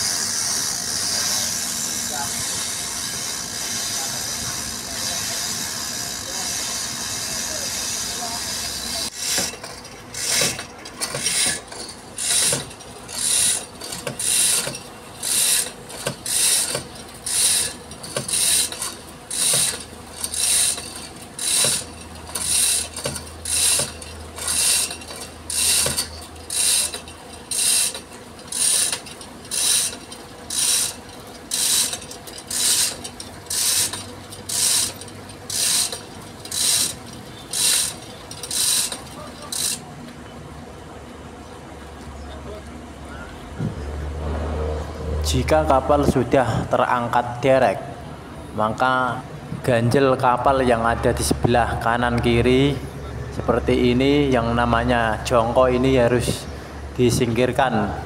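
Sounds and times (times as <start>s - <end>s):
chain hoist chain rasping: 0.0s - 39.9s.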